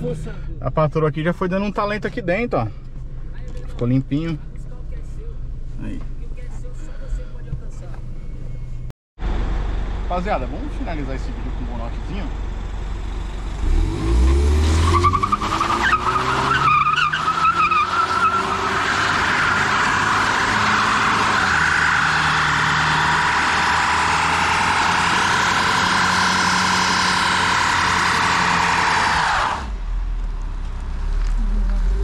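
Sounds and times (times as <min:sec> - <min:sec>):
car engine revving: 0:07.8 - 0:32.0.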